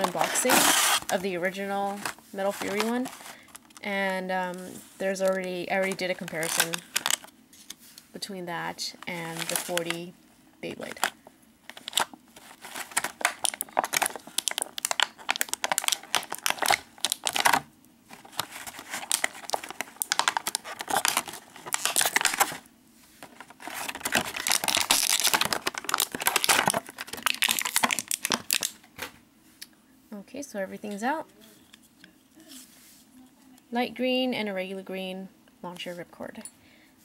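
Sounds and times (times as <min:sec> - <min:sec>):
plastic packaging crinkling: 0:00.0 - 0:07.8, 0:08.9 - 0:28.8.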